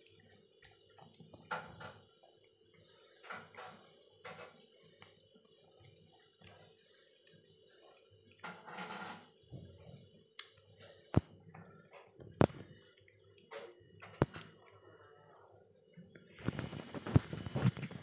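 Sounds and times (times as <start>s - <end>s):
cat chewing: 0.0s - 8.6s.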